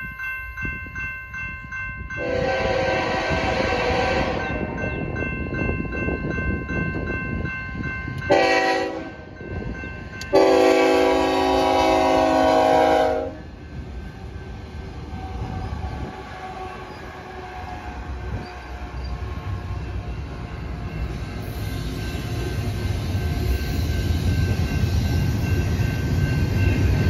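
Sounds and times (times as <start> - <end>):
crossing bell dinging: 0.0 - 27.0
train rumbling past: 0.0 - 27.0
locomotive air horn blasts: 2.2 - 4.6, 8.3 - 9.3, 10.3 - 13.4.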